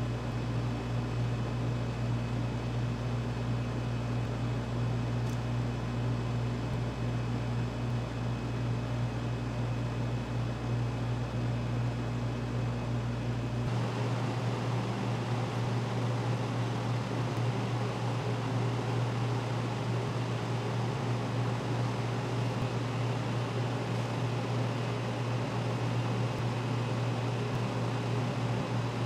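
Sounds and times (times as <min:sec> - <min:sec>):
machine hum: 0:13.2 - 0:29.0.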